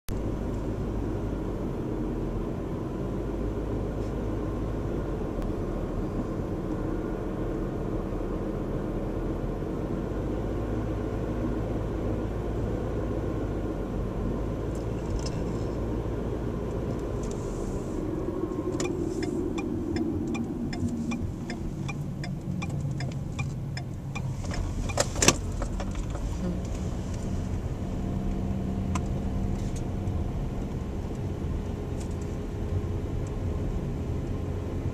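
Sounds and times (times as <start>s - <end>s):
car engine and tyre drone: 0.1s - 34.9s
turn-signal relay ticking: 18.8s - 24.3s.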